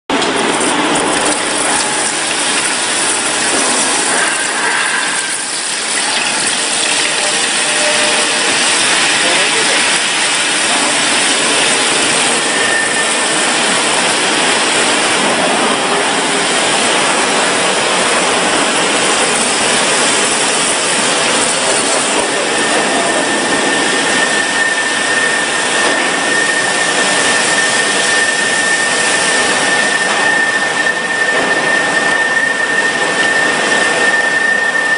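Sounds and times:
thin high whine: 0.1 - 34.9
water spraying hiss on hot steel: 1.3 - 15.1.

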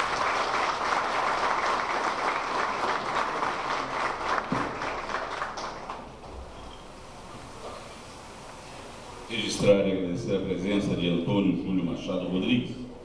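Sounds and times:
audience applauding: 0.0 - 6.2.

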